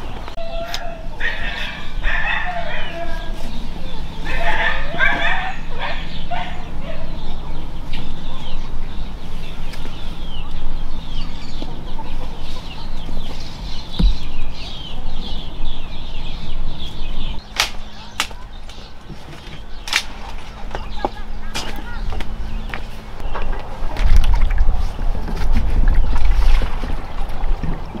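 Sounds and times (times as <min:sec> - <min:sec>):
chickens clucking: 0:00.0 - 0:28.0
sharp knocks: 0:14.0 - 0:14.4.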